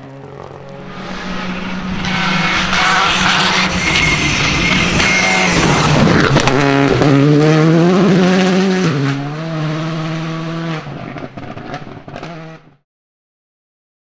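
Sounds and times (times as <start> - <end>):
rally car engine accelerating: 0.0 - 12.8.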